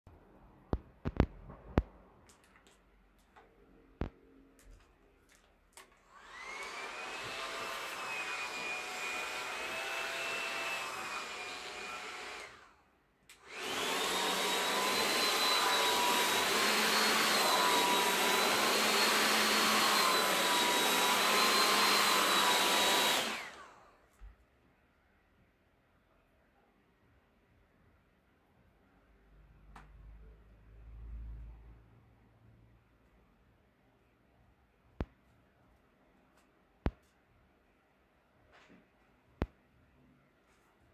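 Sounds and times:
hot-air brush blowing and whining: 6.0s - 12.8s, 13.4s - 23.9s.

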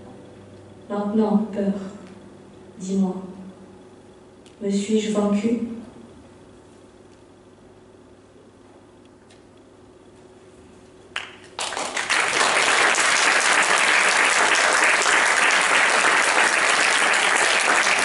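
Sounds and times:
audience applause: 11.2s - 18.0s.

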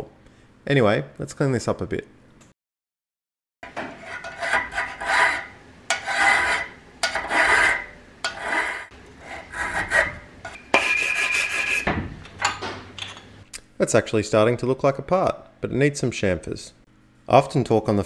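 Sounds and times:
file rasping on steel: 3.6s - 11.9s.

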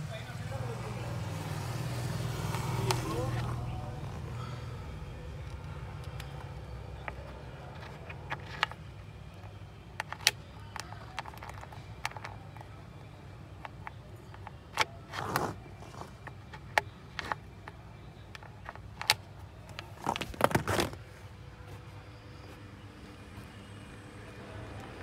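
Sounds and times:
cable plug clicking and rattling: 5.3s - 12.8s, 13.6s - 21.0s.

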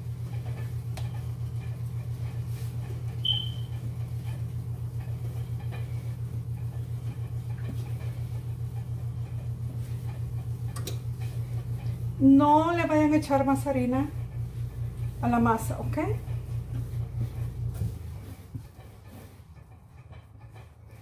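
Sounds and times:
pulsing machine hum: 0.0s - 21.0s
short high chirp: 3.2s - 3.7s.

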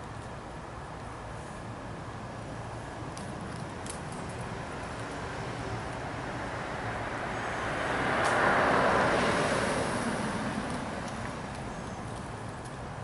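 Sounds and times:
car driving past: 7.5s - 11.0s.

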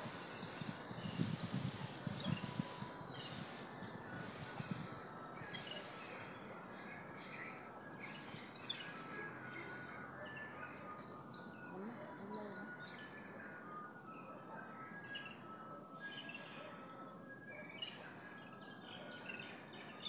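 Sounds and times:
high insect-like hiss: 0.0s - 13.7s
birds chirping: 0.0s - 20.0s.

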